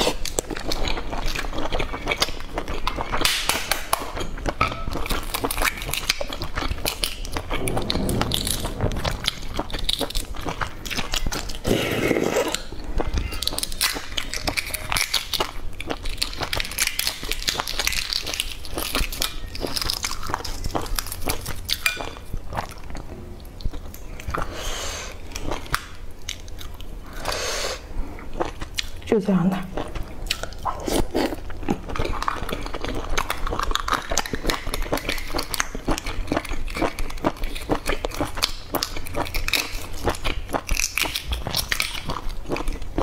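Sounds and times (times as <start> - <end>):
mouth chewing: 9.2 - 43.0.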